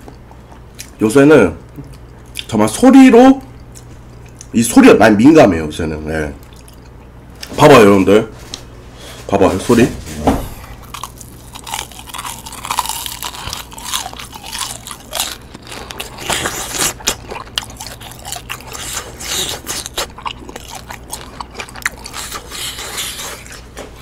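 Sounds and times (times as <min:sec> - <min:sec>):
soft chewing: 0:00.0 - 0:01.0, 0:01.6 - 0:02.6, 0:03.4 - 0:04.6, 0:06.4 - 0:07.6, 0:10.6 - 0:24.0
crisp crunching of fried food: 0:10.8 - 0:23.7.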